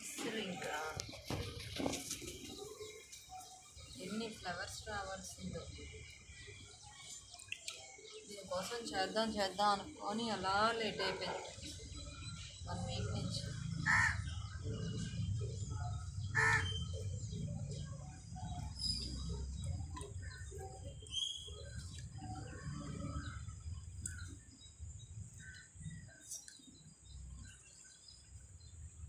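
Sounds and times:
birds chirping: 0.0 - 29.0
crow cawing: 13.8 - 14.3, 16.4 - 16.8.

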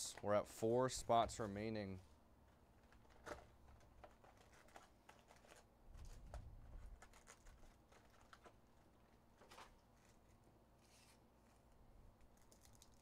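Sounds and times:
foil packs clicking and tapping: 2.8 - 8.6.

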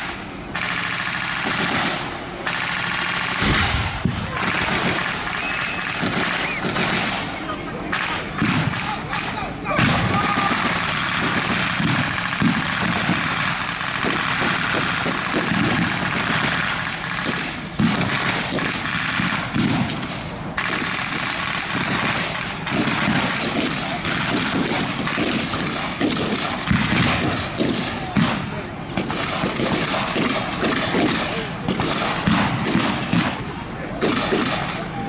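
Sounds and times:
rapid machine-gun fire: 0.0 - 33.4, 34.0 - 34.8
rifle shots: 0.0 - 34.9.

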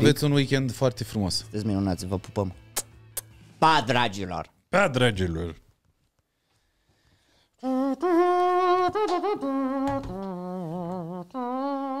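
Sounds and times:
person humming a slow melody: 7.6 - 12.0.

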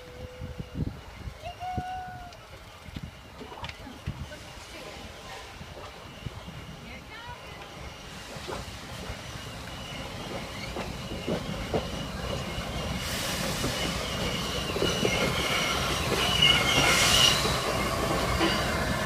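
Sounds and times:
wheels squealing on rails: 0.0 - 19.0
steam hissing: 4.1 - 19.0.

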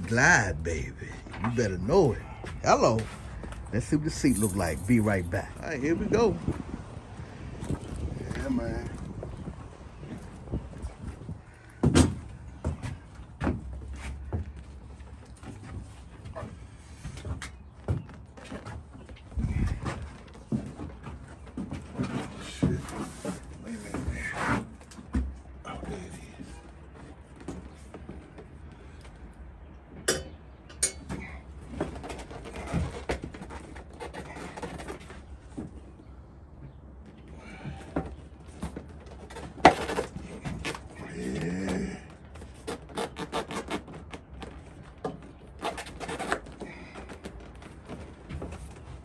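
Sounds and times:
rubbing and handling noise: 0.0 - 6.4.

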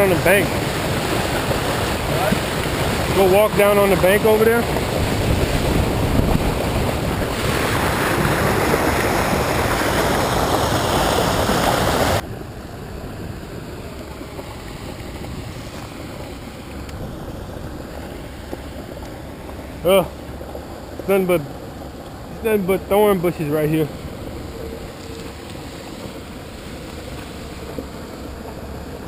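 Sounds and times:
rushing churning water: 0.0 - 29.0.

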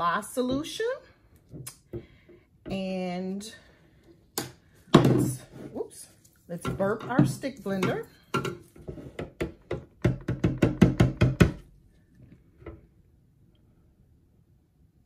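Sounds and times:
stick blender knocking on plastic container: 9.4 - 11.6.

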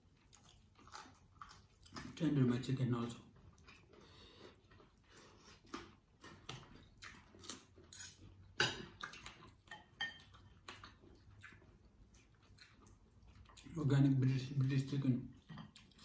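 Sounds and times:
cutlery clinking on plates: 9.6 - 10.4.

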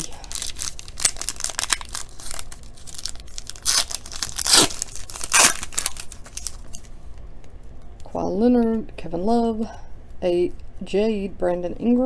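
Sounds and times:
foil wrapper ripping: 0.0 - 6.8
foil wrapper crinkling: 0.0 - 7.0.

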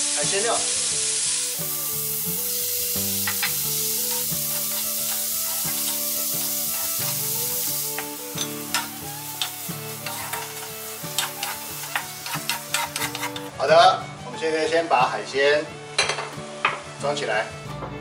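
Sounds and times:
seafood sizzling in hot oil: 0.0 - 13.5
spatula scraping a wok: 2.1 - 13.5.

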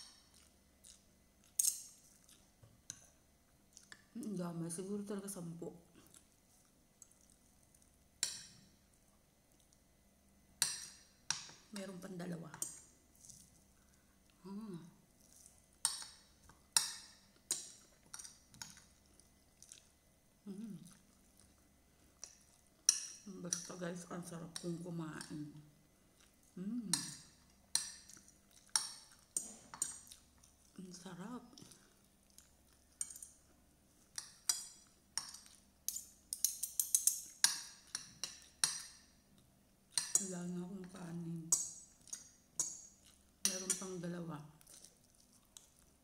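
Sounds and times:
person humming: 20.5 - 20.9, 26.6 - 27.1.

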